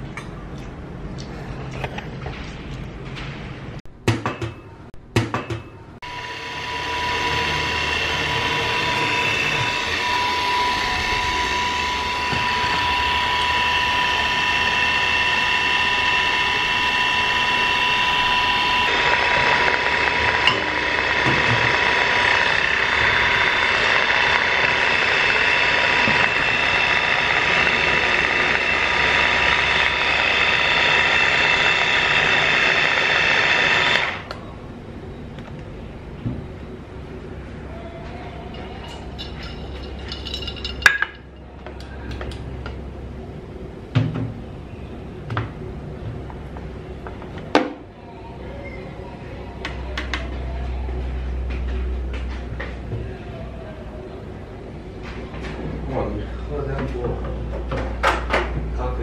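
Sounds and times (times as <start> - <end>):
blender motor whining: 6.0 - 34.4.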